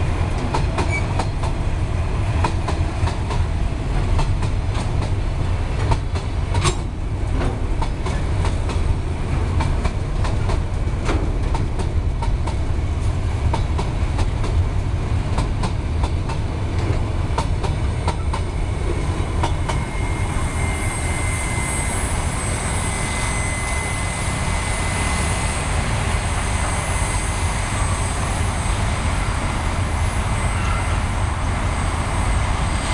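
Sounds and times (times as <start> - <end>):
heavy train rumble: 0.0 - 32.9
train wheels clicking over rail joints: 0.2 - 1.7, 2.3 - 19.9
high ringing tone: 19.5 - 25.6, 30.0 - 31.1.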